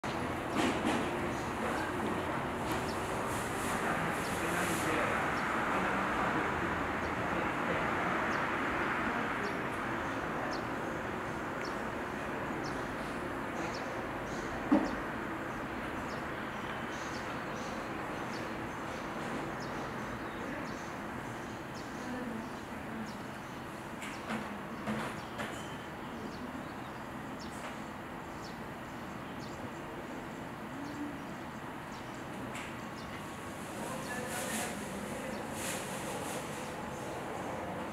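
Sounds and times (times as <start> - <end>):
outdoor background noise: 0.0 - 37.9
small birds chirping: 8.2 - 37.9.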